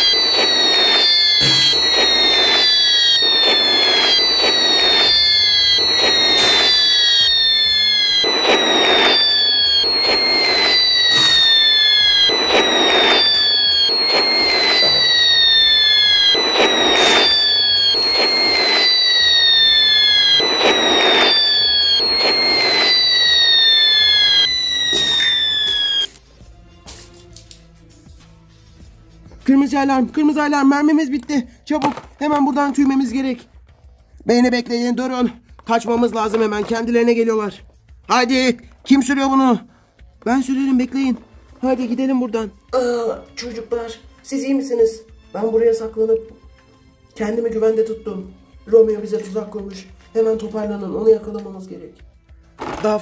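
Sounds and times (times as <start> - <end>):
explosions: 0.0 - 26.2
falling bomb whistles: 0.0 - 26.2.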